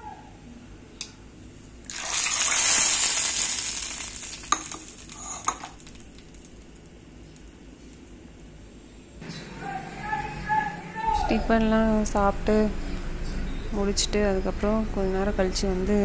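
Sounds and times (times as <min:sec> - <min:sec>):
hot oil sizzling: 0:01.9 - 0:07.6.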